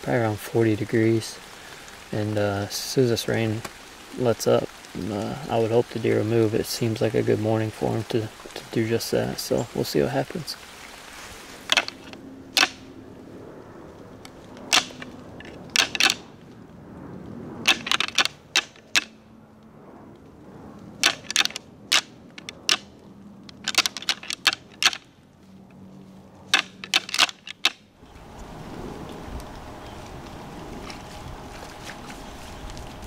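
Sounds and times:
antlers clashing and grinding: 11.7 - 12.8, 14.7 - 16.2, 17.7 - 19.1, 21.0 - 22.8, 23.5 - 25.0, 26.6 - 27.8.

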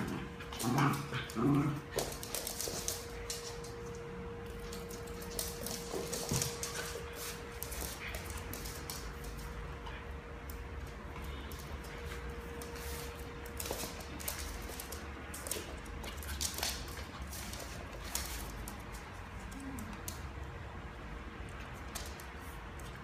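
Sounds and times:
dogs scuffling: 0.0 - 20.3
claws clicking on laminate floor: 0.0 - 20.5, 21.5 - 23.0.

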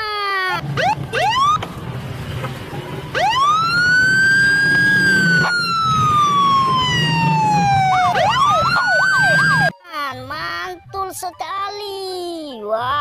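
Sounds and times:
electronic siren wailing and yelping: 0.5 - 1.6, 3.0 - 9.7.

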